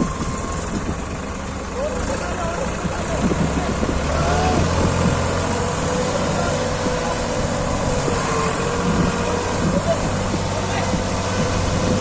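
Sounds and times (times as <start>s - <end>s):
tractor diesel engine under load: 0.0s - 12.0s
men talking: 1.6s - 4.9s, 5.9s - 11.4s.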